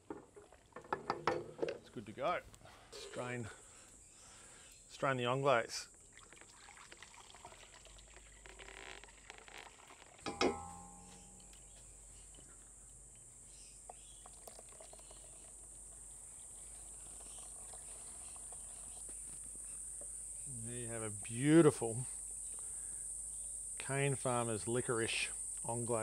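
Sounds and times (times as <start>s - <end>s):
insects chirring: 2.0s - 26.0s
metal pot clanking down: 10.2s - 11.8s.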